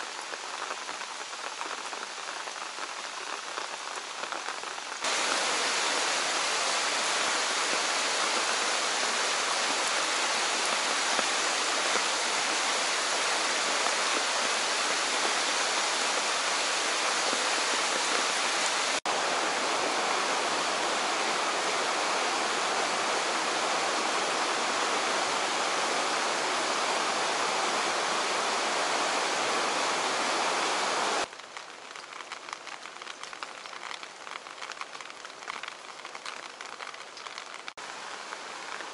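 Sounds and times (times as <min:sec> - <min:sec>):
rain pattering on wet pavement: 0:00.0 - 0:19.2, 0:31.2 - 0:38.9
heavy rain on flooded ground: 0:00.0 - 0:38.9
rushing stream in flood: 0:00.0 - 0:38.9.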